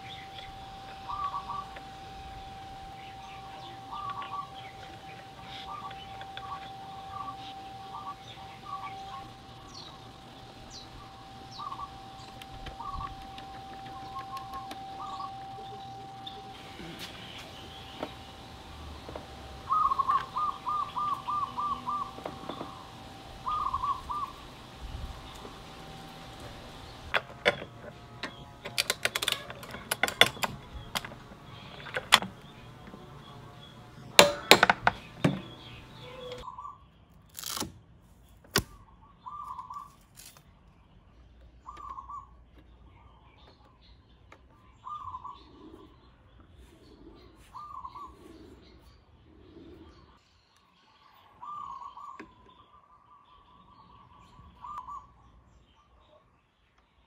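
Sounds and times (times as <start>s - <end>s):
birds chirping: 0.0s - 37.6s, 38.2s - 57.0s
bird soft coos: 18.9s - 27.0s, 44.8s - 50.2s.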